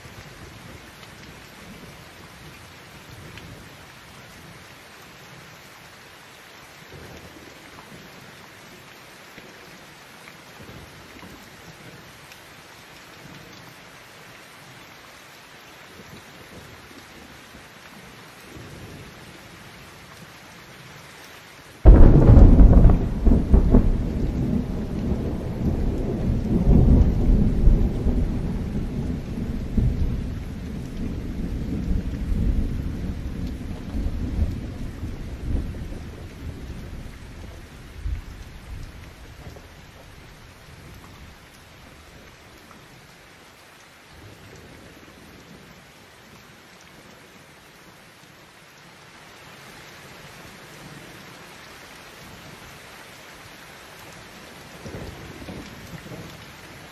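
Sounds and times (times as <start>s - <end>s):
heavy rain: 0.0s - 56.9s
thunderclap rumbling: 21.8s - 40.1s.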